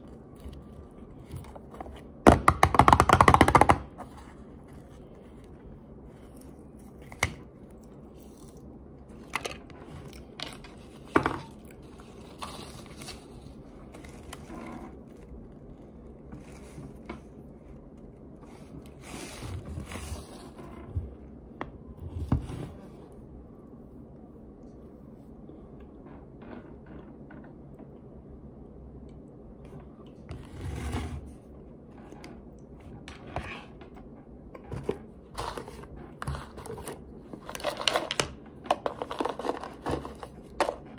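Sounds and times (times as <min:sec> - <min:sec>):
nails tapping on plastic tubs: 0:02.3 - 0:03.9.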